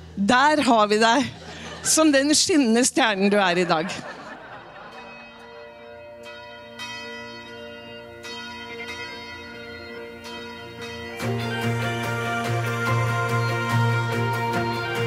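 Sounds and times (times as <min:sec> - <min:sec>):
church bell ringing: 0:04.0 - 0:15.0.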